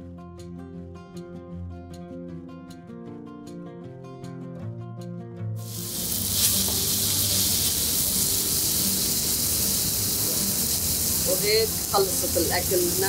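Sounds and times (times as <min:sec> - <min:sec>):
guitar music: 0:00.0 - 0:13.0
vegetables sizzling in oil: 0:05.6 - 0:13.0.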